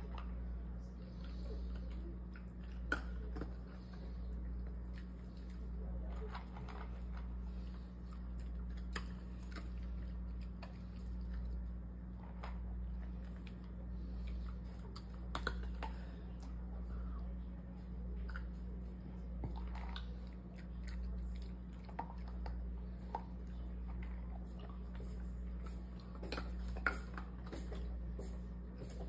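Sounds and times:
dog crunching kibble: 0:00.0 - 0:16.7, 0:18.1 - 0:28.1
steady low hum: 0:00.0 - 0:29.0.

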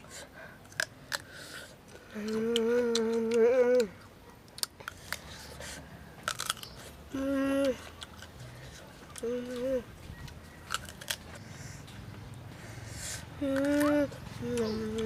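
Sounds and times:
person humming mmm: 0:02.1 - 0:04.0, 0:07.1 - 0:07.9, 0:09.2 - 0:09.9, 0:13.4 - 0:15.0
crunchy fruit chewing: 0:04.5 - 0:15.0.

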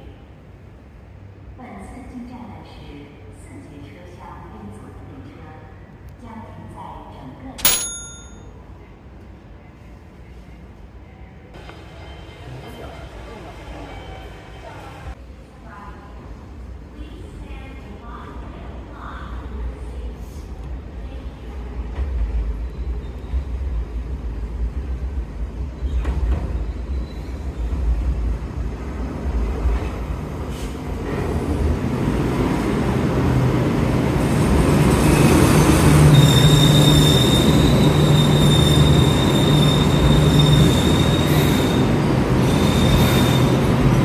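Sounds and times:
high-pitched wheel squeal: 0:35.5 - 0:41.8.

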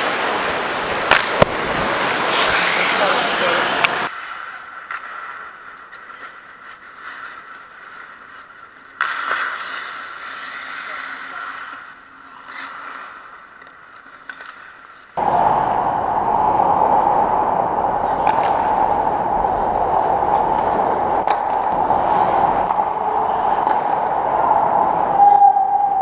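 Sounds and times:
loud steady rushing noise: 0:00.0 - 0:04.1, 0:15.2 - 0:26.0
constant hum: 0:04.9 - 0:26.0.

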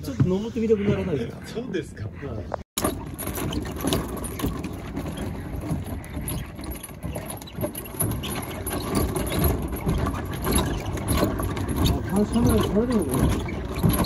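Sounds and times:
footsteps on wooden rungs: 0:02.8 - 0:14.0.

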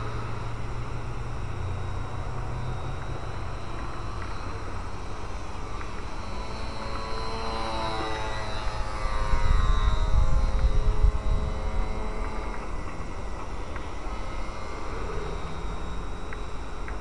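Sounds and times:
model plane motor whining: 0:00.0 - 0:17.0
wind on microphone: 0:08.8 - 0:14.4.

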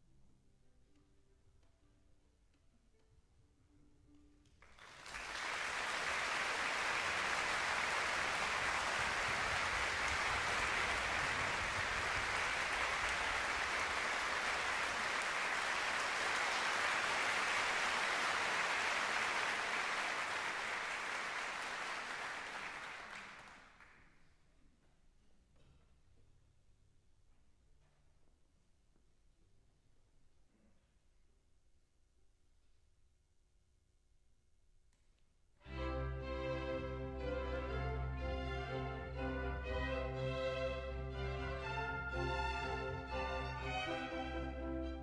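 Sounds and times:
audience applauding: 0:04.6 - 0:24.0.

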